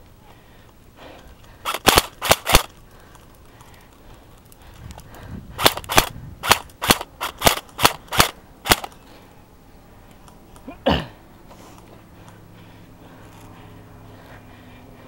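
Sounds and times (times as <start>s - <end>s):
airsoft gun shots: 1.7s - 2.7s, 5.6s - 8.9s.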